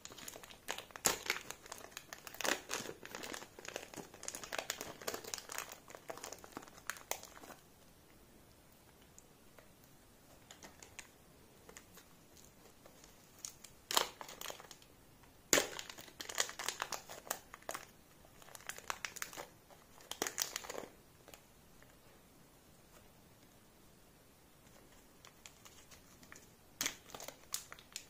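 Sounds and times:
plastic wrapper crinkling: 0.0 - 7.6, 10.3 - 14.9, 15.5 - 21.5, 24.7 - 28.0.

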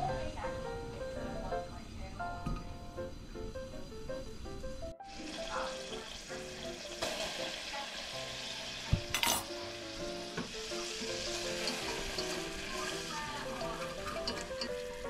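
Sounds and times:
background music with plucked notes: 2.2 - 15.0
butter sizzling in saucepan: 5.0 - 15.0
whisk in saucepan: 10.6 - 15.0.

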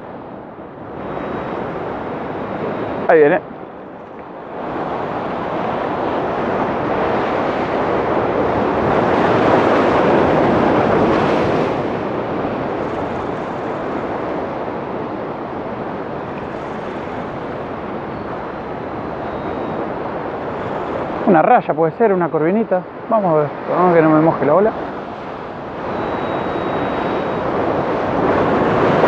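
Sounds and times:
wind on microphone: 0.0 - 29.0
surf washing against rocks: 4.5 - 29.0.

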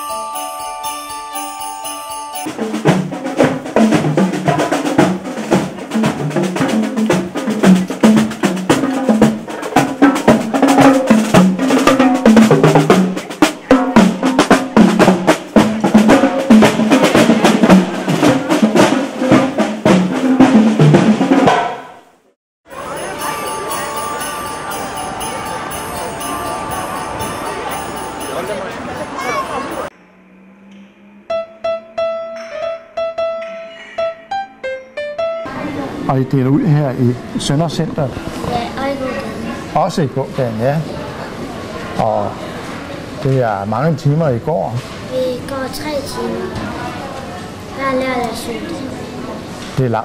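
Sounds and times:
festive holiday music with sleigh bells: 0.0 - 3.6, 22.7 - 29.9
marching band playing: 0.0 - 21.8, 22.7 - 29.9
bass drum beats: 2.5 - 21.8
snare drum rolls: 2.5 - 22.0.

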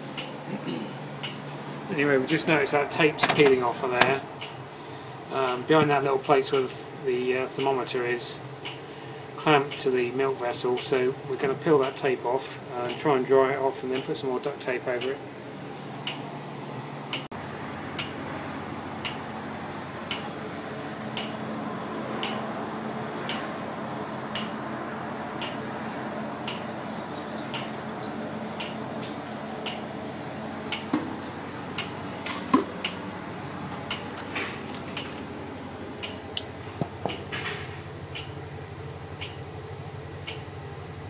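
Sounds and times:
refrigeration machinery hum: 0.0 - 41.0
loud knocks: 3.2 - 4.2.

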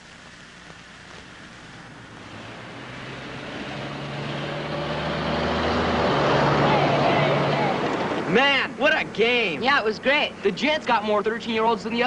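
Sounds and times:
car approaching: 2.0 - 10.4.

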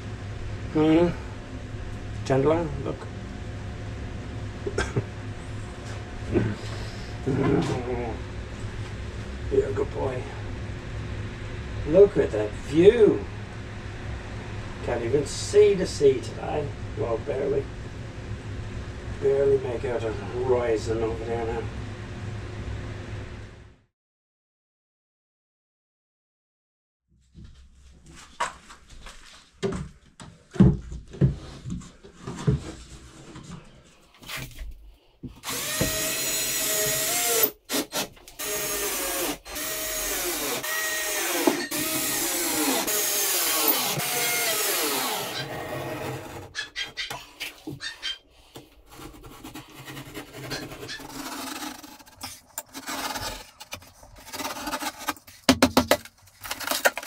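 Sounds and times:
power drill running: 35.4 - 46.5.

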